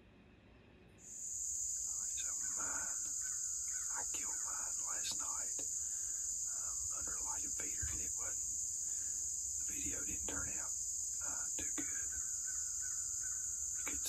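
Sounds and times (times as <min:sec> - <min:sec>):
high-pitched insect chorus: 0:01.0 - 0:14.0
short chirping calls: 0:01.3 - 0:08.1.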